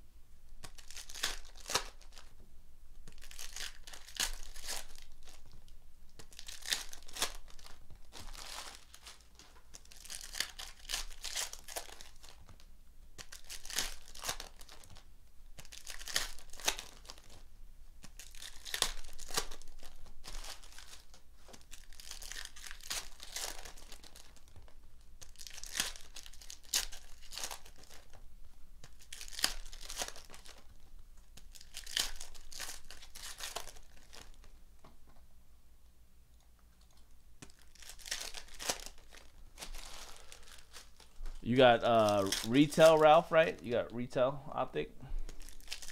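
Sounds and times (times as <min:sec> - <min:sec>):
foil wrappers tearing and crinkling: 0:00.6 - 0:02.3, 0:03.1 - 0:05.6, 0:06.2 - 0:17.4, 0:18.0 - 0:28.2, 0:28.8 - 0:30.8, 0:31.4 - 0:34.5, 0:37.4 - 0:43.8, 0:45.3 - 0:45.9.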